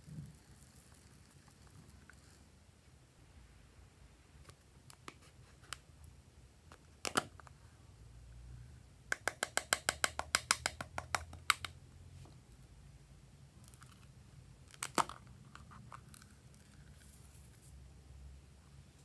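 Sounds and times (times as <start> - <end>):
sharp plastic clicks and taps: 9.1 - 11.8.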